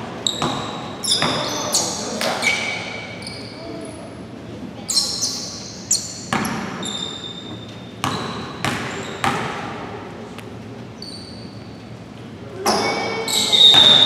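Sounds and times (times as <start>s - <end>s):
basketball bouncing on hardwood floor: 0.3s - 1.5s, 6.3s - 6.8s, 8.0s - 9.6s.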